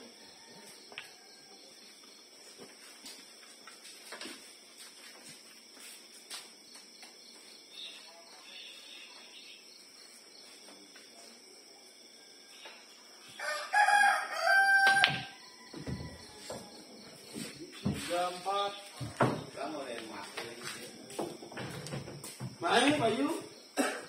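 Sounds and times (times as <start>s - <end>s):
rooster crowing: 0.0s - 1.9s, 13.3s - 17.5s.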